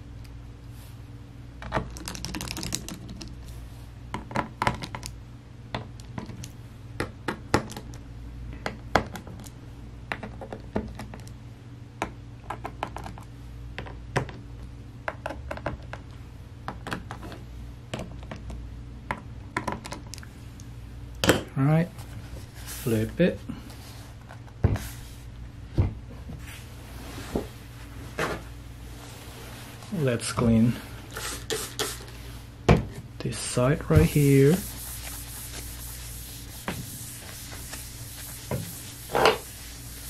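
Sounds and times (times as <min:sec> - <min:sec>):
steady low hum: 0:00.0 - 0:40.0.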